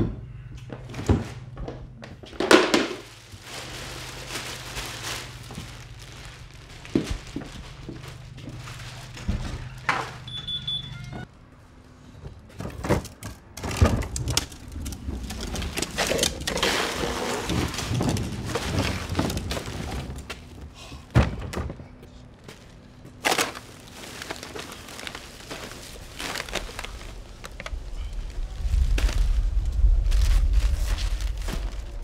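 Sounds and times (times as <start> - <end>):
plastic trash bin rolling on concrete: 1.0 - 10.6, 12.5 - 21.7
garbage bag rustling: 2.2 - 10.4, 13.0 - 21.4, 22.4 - 32.0
trash spilling out: 2.4 - 10.3, 12.6 - 21.6, 23.1 - 32.0.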